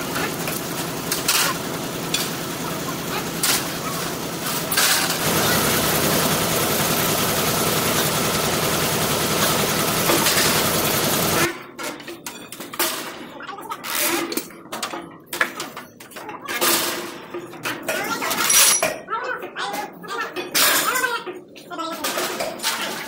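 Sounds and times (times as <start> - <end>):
metal clanks of pry bars: 18.4 - 19.1.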